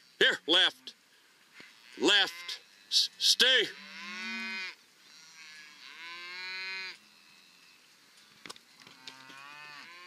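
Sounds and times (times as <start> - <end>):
cattle mooing: 3.6 - 7.4, 9.0 - 10.0.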